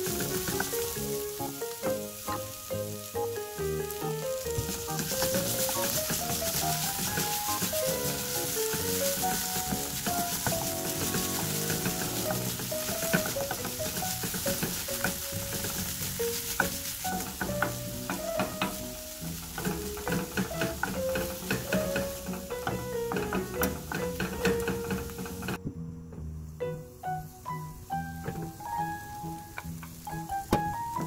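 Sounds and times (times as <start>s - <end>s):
vegetables sizzling in a frying pan: 0.0s - 25.6s, 26.2s - 31.0s
wooden spatula scraping a pan: 0.0s - 25.6s
spatula knocking against pan: 4.6s - 18.8s, 19.5s - 25.6s.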